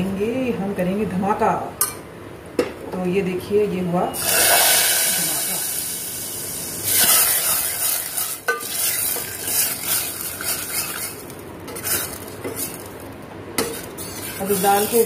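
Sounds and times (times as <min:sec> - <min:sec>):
hot oil sizzling in dal: 0:04.2 - 0:12.9, 0:13.6 - 0:15.0
ladle scraping metal pot: 0:07.0 - 0:12.8, 0:13.6 - 0:15.0.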